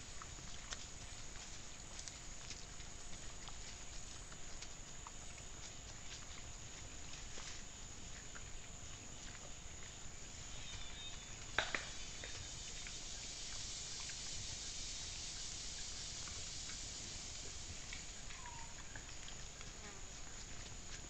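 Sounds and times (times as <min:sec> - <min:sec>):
insects buzzing: 0:06.8 - 0:21.0
faint ticks: 0:15.3 - 0:21.0.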